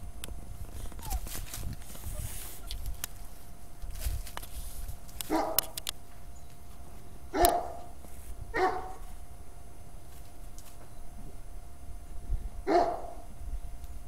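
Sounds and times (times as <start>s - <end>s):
puppy barking: 0.9s - 1.4s, 5.3s - 5.8s, 7.3s - 7.9s, 8.6s - 9.0s, 12.7s - 13.3s.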